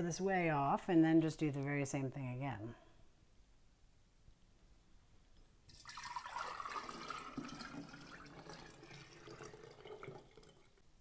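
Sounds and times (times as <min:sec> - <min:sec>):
liquid pouring into a glass jar: 0:05.7 - 0:10.8.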